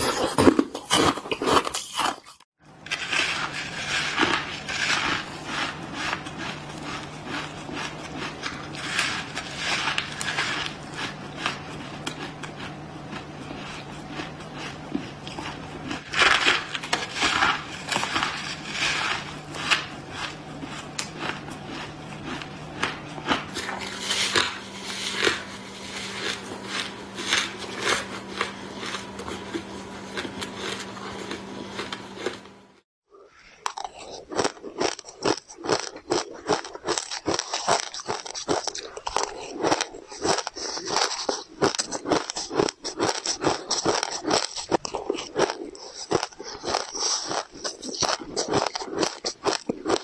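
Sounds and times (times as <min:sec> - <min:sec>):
crushed ice being chewed: 0:00.0 - 0:32.6, 0:33.5 - 0:50.0
faint steady hum: 0:02.6 - 0:32.8.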